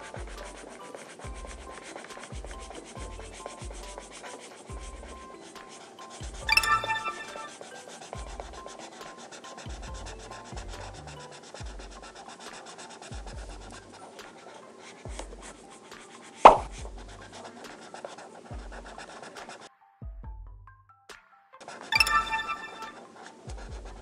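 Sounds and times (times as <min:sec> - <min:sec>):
marker scratching on paper: 0:00.0 - 0:19.6
soft background music: 0:00.0 - 0:24.0
sharp knock: 0:16.5 - 0:16.7.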